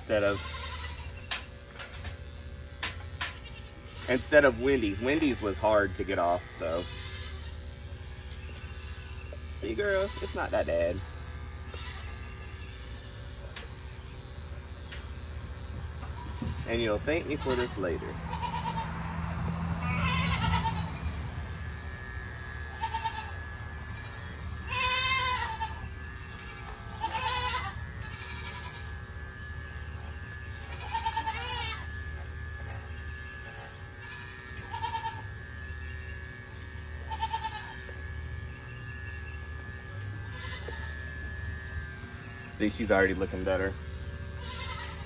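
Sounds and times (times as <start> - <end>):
electric clippers humming: 0.0 - 45.0
goat bleating: 0.1 - 1.3, 3.3 - 13.2, 16.0 - 21.5, 22.6 - 29.7, 30.5 - 31.9, 32.9 - 35.5, 37.0 - 38.0, 40.2 - 41.0, 44.3 - 45.0.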